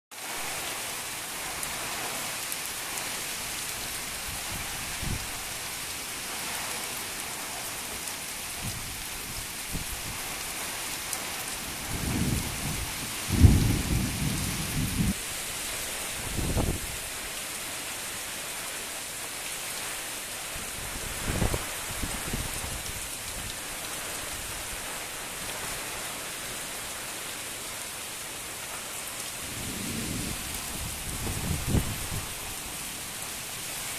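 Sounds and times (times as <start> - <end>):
heavy rain hissing: 0.1 - 33.9
deep thunder rumbles: 11.9 - 15.2, 29.4 - 32.3.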